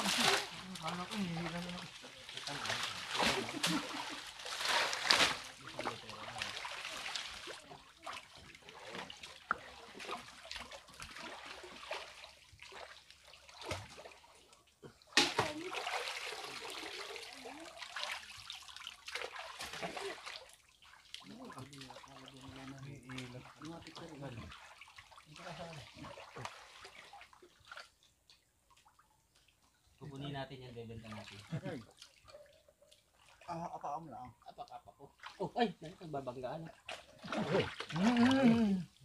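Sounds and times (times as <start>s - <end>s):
water splashing and sloshing: 0.0s - 30.0s, 30.9s - 33.8s, 35.1s - 39.0s.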